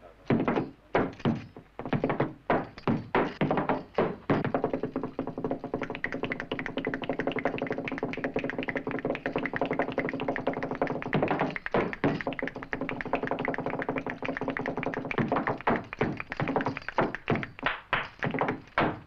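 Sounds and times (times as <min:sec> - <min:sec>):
boot heels stamping sharp taps: 0:00.3 - 0:19.0
flamenco-style music: 0:00.3 - 0:19.0.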